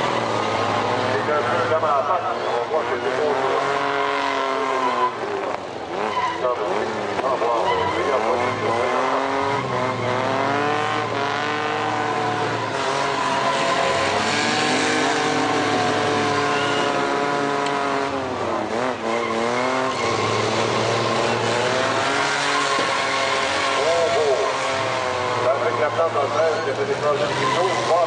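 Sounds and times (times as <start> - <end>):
truck engines revving hard: 0.0 - 28.0.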